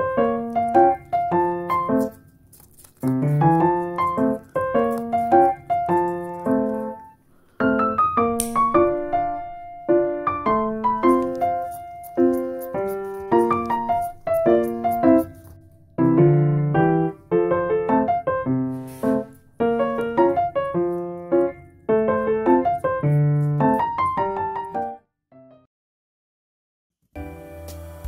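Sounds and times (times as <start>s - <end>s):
piano music: 0.0s - 25.7s, 27.2s - 28.0s.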